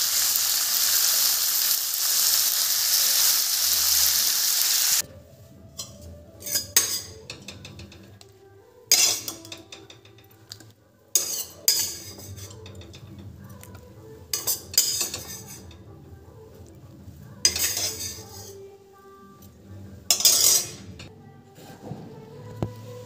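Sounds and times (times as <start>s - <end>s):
spoon scraping and clinking metal bowl: 5.8s - 8.2s, 8.9s - 15.9s, 17.4s - 18.6s, 20.1s - 21.1s.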